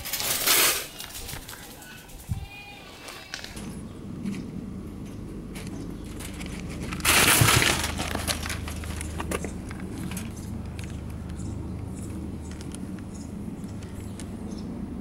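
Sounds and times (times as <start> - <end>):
plastic sheet crinkling: 6.1 - 10.3.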